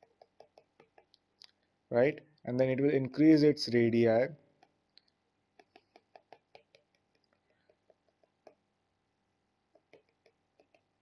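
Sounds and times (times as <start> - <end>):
stylus tapping on tablet screen: 9.7 - 11.0.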